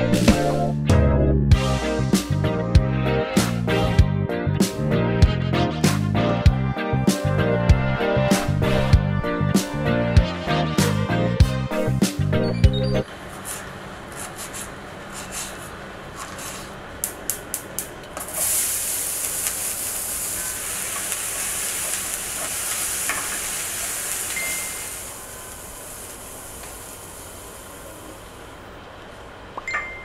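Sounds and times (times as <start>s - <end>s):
vegetables sizzling in a frying pan: 18.2s - 28.6s.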